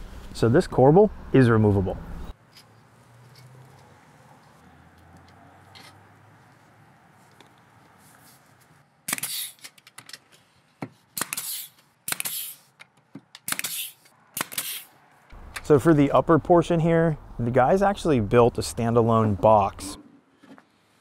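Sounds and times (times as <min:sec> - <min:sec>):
pneumatic nailer firing: 0:09.1 - 0:09.8, 0:11.1 - 0:12.7, 0:13.4 - 0:14.9.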